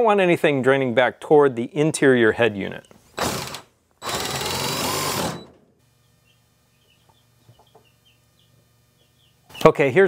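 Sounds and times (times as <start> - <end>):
cordless drill boring through wall: 3.2 - 5.5
faint bird chirps: 6.0 - 9.8.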